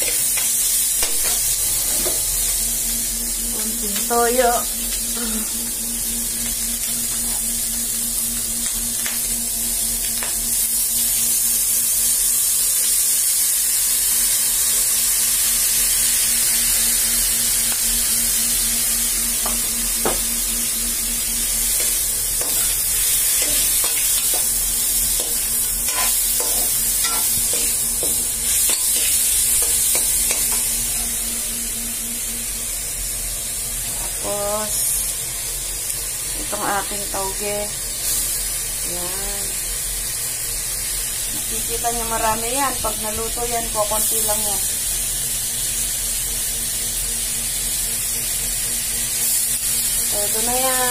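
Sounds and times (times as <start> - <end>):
meat sizzling in a wok: 0.0 - 50.9
spatula scraping a pan: 25.1 - 30.6.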